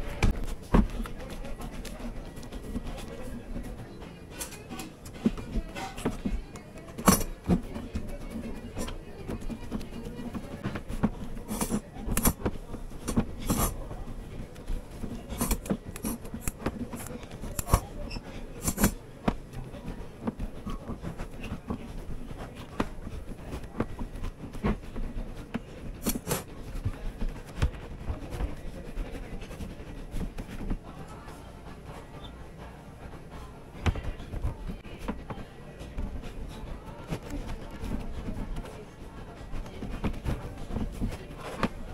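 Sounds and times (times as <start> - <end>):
hands rubbing candy: 0.0 - 32.4.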